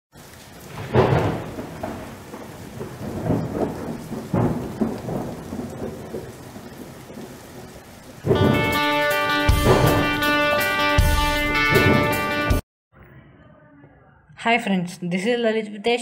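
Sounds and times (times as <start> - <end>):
steady rain: 0.1 - 12.6
rolling thunder: 0.3 - 12.4.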